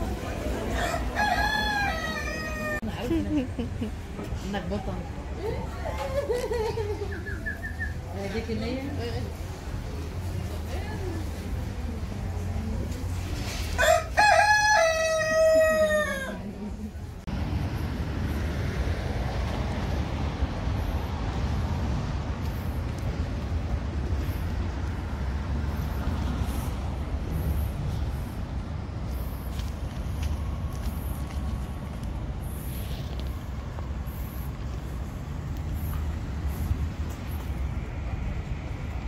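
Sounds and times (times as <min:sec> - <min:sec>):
rooster crowing: 0:00.6 - 0:02.8, 0:13.8 - 0:16.4.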